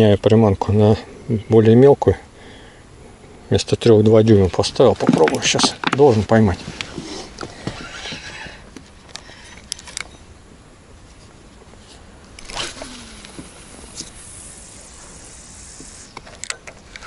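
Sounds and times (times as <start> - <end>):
fishing line cast whoosh: 12.4 - 16.1
fishing reel clicks: 12.4 - 17.0.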